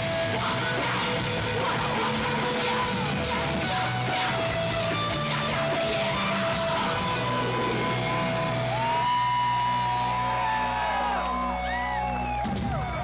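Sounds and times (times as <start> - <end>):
high bending guitar tones: 0.0 - 9.2
electric guitars and bass chord: 0.0 - 11.7.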